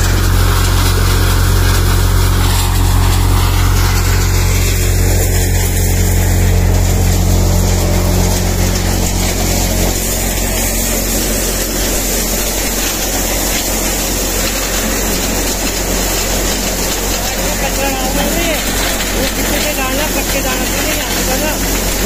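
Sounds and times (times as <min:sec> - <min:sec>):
loud rushing machine noise: 0:00.0 - 0:22.0
low engine hum: 0:00.0 - 0:22.0.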